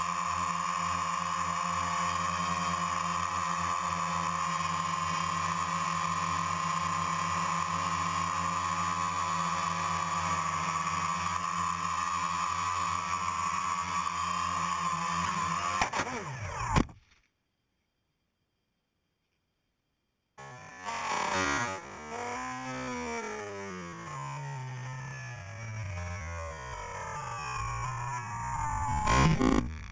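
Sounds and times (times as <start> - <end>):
drone propellers humming: 20.4 - 29.9
drone striking pole: 26.6 - 29.9.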